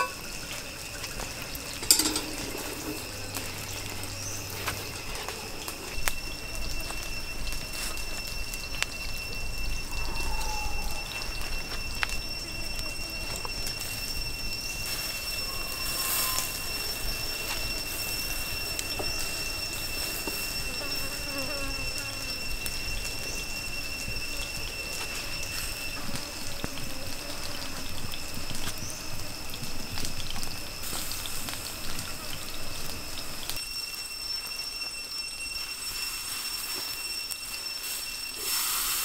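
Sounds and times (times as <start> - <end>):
steady high whine: 0.0 - 26.8
charcoal crackling: 0.0 - 39.0
chicken sizzling on a grill: 0.0 - 39.0.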